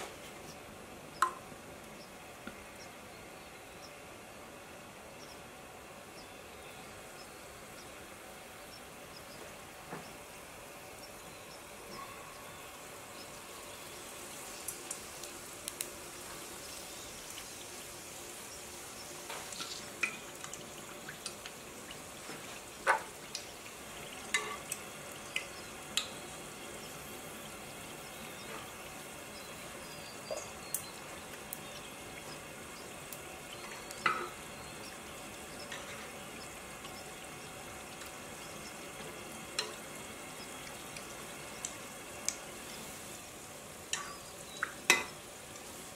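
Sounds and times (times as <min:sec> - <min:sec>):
oil sizzling and bubbling: 0:00.0 - 0:45.9
wire utensil clicks and pops: 0:14.9 - 0:15.9.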